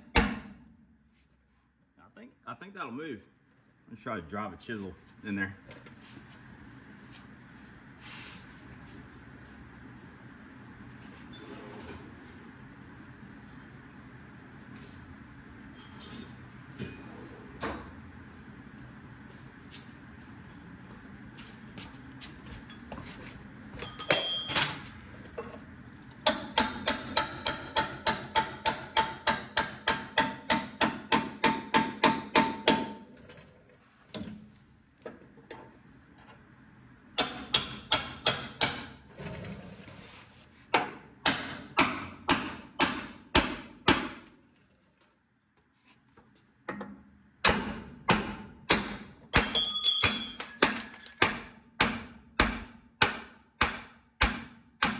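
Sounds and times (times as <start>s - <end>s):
hammer striking steel chisel: 26.2s - 33.0s, 37.2s - 38.9s, 41.2s - 44.2s, 47.4s - 54.9s.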